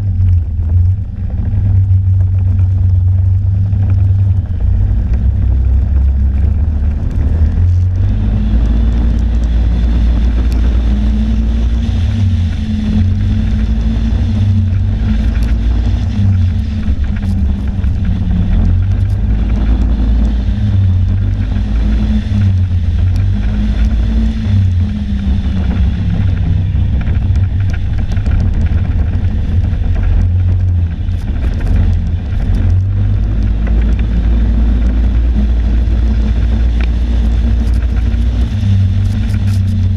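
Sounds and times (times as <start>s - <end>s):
snowmobile engine running: 0.0s - 39.9s
wind rumbling on microphone: 0.0s - 39.9s.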